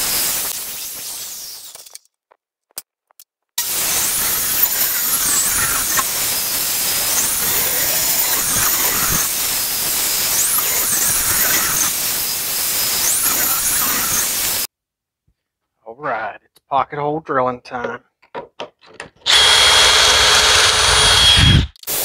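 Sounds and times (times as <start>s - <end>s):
table saw ripping wood: 3.6s - 14.7s.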